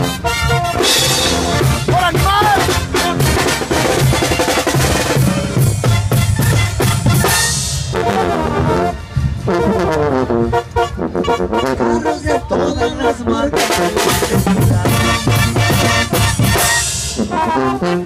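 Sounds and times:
drum kit beat: 0.0 - 8.6, 13.6 - 17.4
brass band melody: 0.0 - 18.0.

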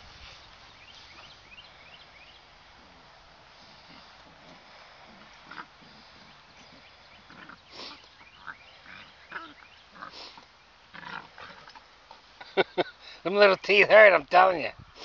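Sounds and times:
dogs growling: 3.7 - 10.2, 10.9 - 11.8.

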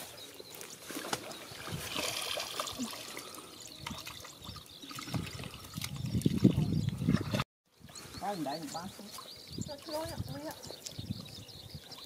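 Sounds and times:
muddy water sloshing and splashing: 0.0 - 7.4.

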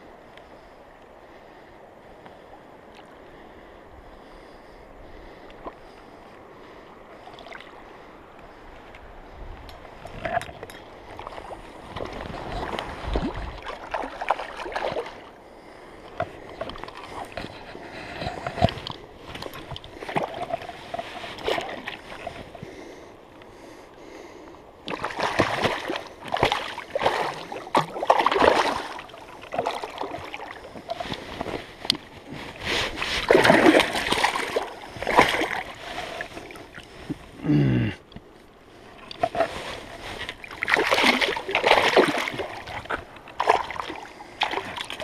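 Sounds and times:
water splashing and sloshing: 1.5 - 24.2, 24.8 - 37.4, 38.0 - 45.0.

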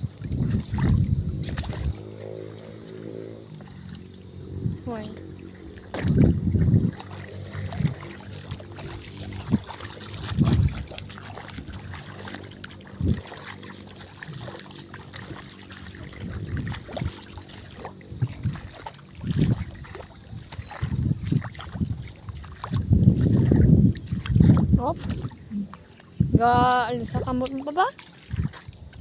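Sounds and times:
water sloshing and splashing: 0.0 - 29.0.

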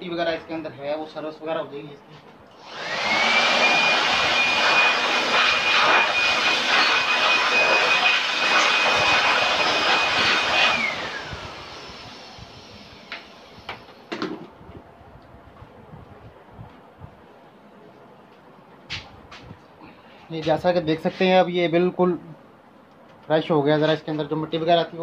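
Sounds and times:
electric air blower whining: 2.5 - 14.5.

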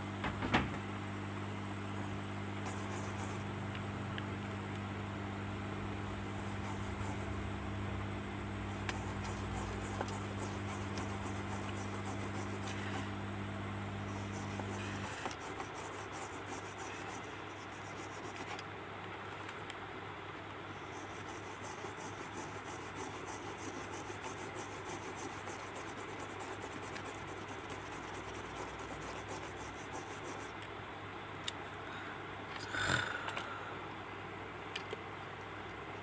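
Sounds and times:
toothbrush scrubbing circuit board: 2.6 - 3.5, 6.0 - 7.5, 8.6 - 13.2, 14.0 - 18.6, 20.8 - 30.6.

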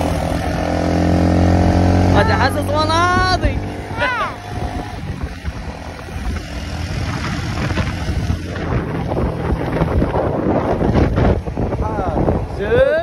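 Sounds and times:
motorbike engine running: 0.0 - 12.5
wind buffeting microphone: 0.0 - 13.0.

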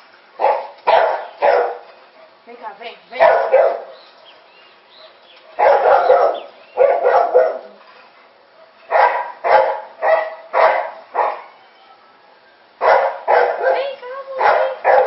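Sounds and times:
dog barking: 0.4 - 2.4, 3.2 - 4.0, 5.0 - 7.8, 8.5 - 11.6, 12.8 - 15.0.

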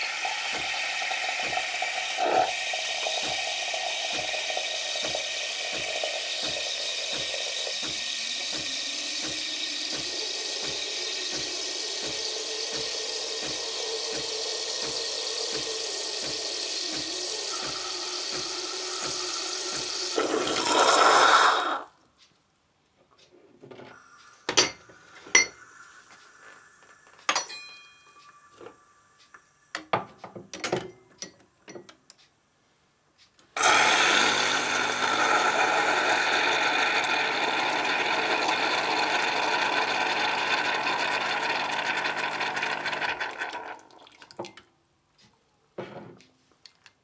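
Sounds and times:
espresso machine steam wand hissing: 0.0 - 21.9, 23.9 - 27.4, 33.6 - 43.7
clinks and taps on glass cup: 27.3 - 28.1.

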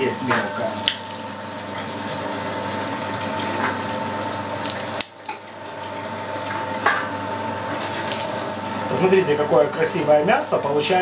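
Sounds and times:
electric meat grinder running: 0.0 - 11.0.

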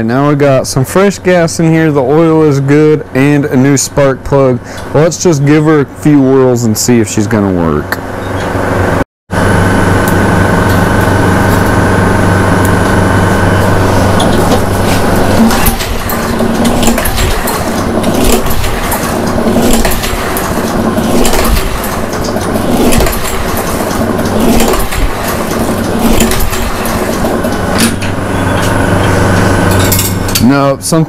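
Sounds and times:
lawn mower engine turning over: 9.3 - 30.6.

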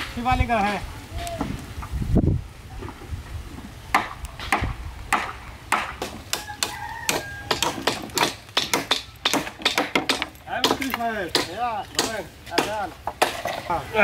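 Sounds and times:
bamboo poles knocking: 3.9 - 13.7.

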